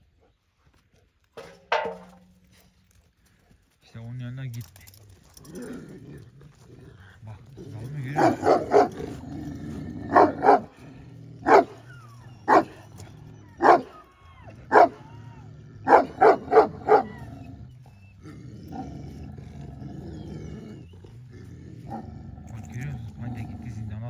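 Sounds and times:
dog barking: 8.2s - 9.0s, 10.1s - 10.7s, 11.4s - 11.8s, 12.4s - 12.8s, 13.6s - 14.0s, 14.7s - 15.0s, 15.8s - 17.2s.

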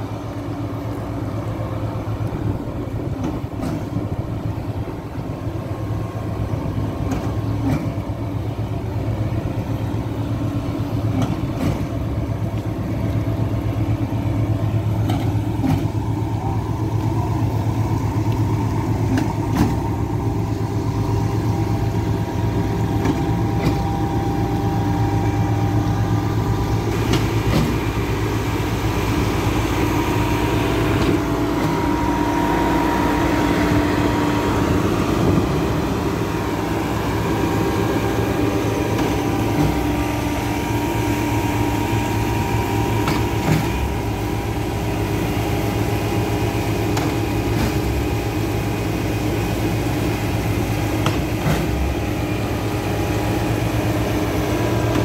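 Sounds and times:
diesel engines running: 0.0s - 55.0s
higher steady note: 29.4s - 42.8s.

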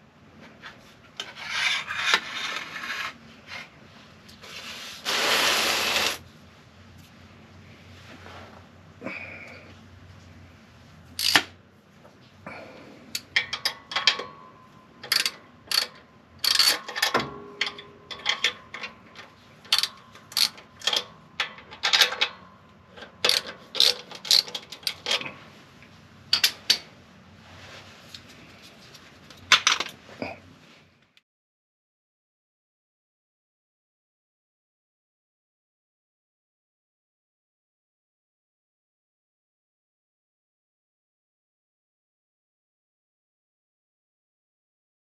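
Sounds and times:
metal pipes and tools clanking: 13.2s - 25.4s.

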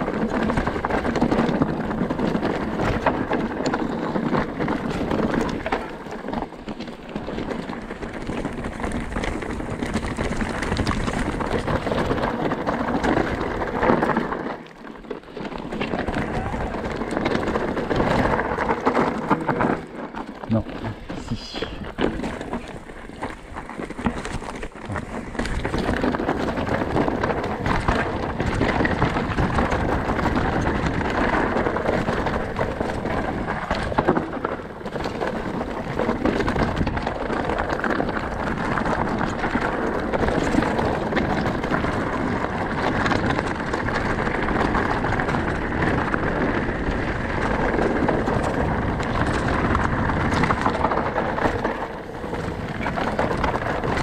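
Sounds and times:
bike rattling and knocking: 0.0s - 21.1s, 21.9s - 54.0s
tyres crunching over gravel: 0.0s - 54.0s
wind on microphone: 15.9s - 54.0s.

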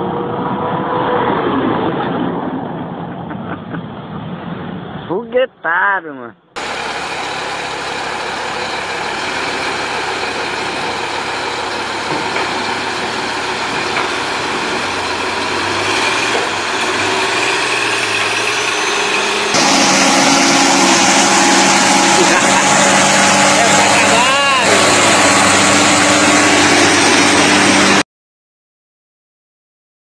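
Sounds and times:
heavy truck diesel engine: 6.6s - 28.0s
loud heavy truck engine: 6.6s - 28.0s.

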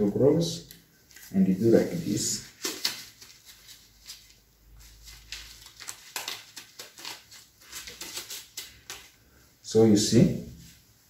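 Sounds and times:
disposable gloves crinkling: 0.9s - 9.4s.

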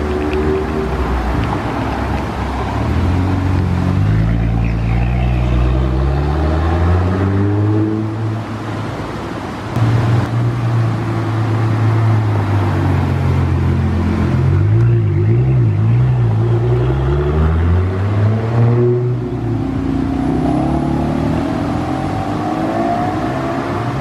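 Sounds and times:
sports car accelerating past: 2.8s - 8.2s.

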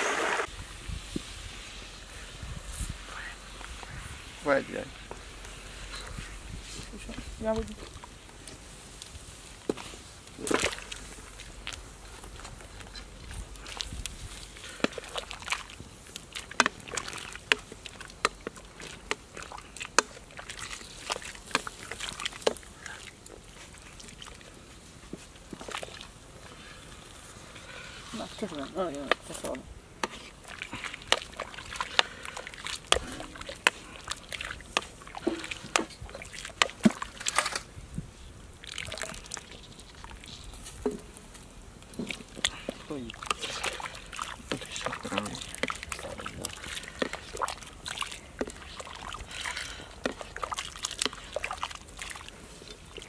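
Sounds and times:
water sloshing in a metal wok: 10.4s - 11.8s, 12.8s - 37.7s, 38.4s - 41.1s, 41.9s - 53.0s.

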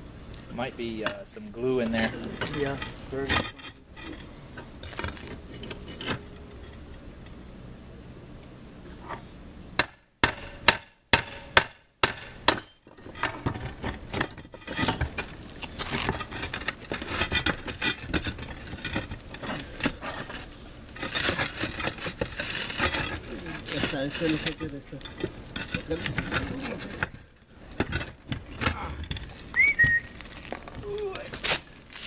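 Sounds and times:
scraping and grating of concrete tile: 1.8s - 6.8s, 13.0s - 32.0s
sharp knocks on roof tiles: 9.8s - 15.2s.

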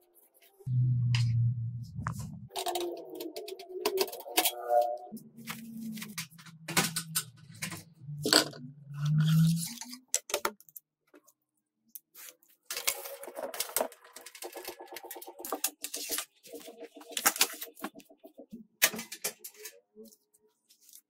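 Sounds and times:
low hum: 0.7s - 3.9s
pulsing tone: 0.7s - 5.9s.

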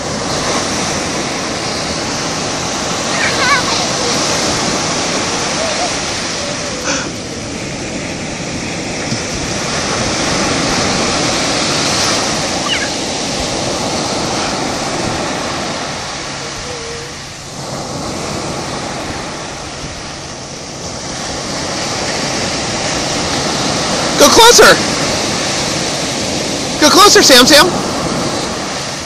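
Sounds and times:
ocean surf breaking on sand: 0.0s - 29.0s.

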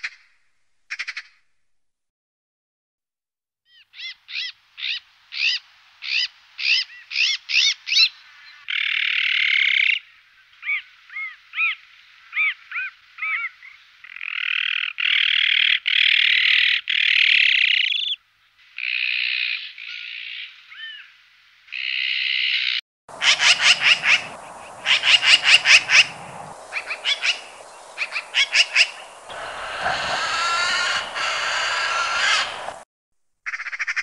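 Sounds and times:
magpie calling: 23.1s - 32.8s
magpie chattering rattles: 23.1s - 32.8s.

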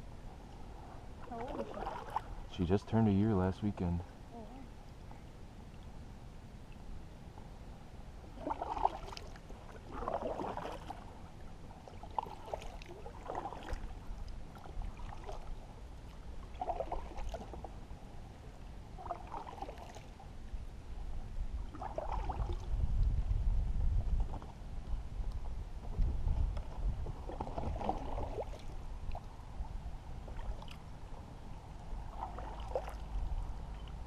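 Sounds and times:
wind rumble on microphone: 0.0s - 34.0s
canoe paddle strokes in water: 0.9s - 2.4s, 8.3s - 18.0s, 18.6s - 20.4s, 21.6s - 34.0s.

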